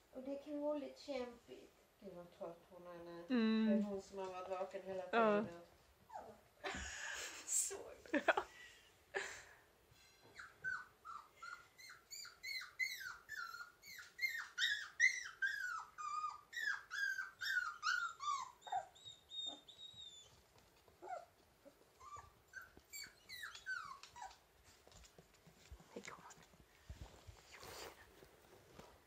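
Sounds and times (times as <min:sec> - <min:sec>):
puppies whimpering: 0:10.3 - 0:24.4.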